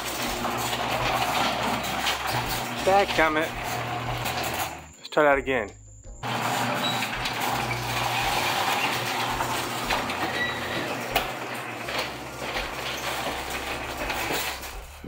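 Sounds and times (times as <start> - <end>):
garage door rumbling down tracks: 0.0 - 4.9, 6.2 - 15.0
rollers rattling and clicking: 0.0 - 5.0, 6.2 - 15.0.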